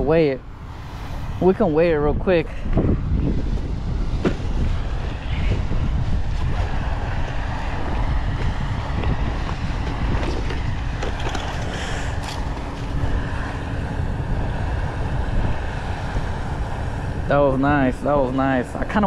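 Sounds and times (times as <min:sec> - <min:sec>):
wind buffeting microphone: 0:00.0 - 0:19.0
microphone handling knocks: 0:04.2 - 0:04.5.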